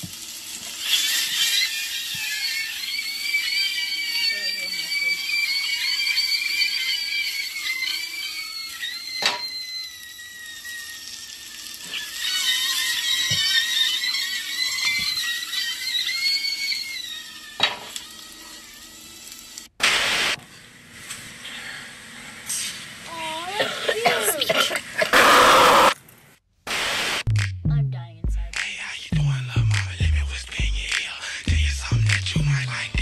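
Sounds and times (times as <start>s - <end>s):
sausages whistling squeals: 0.8s - 19.0s, 25.1s - 26.0s.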